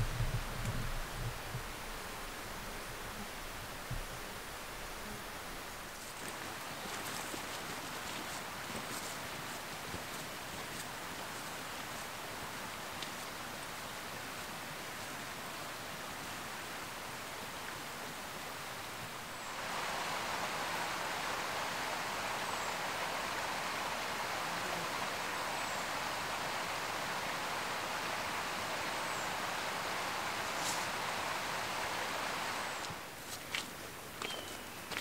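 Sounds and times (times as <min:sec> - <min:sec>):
running water rushing: 0:00.0 - 0:34.2
faint high chirp: 0:34.2 - 0:35.0.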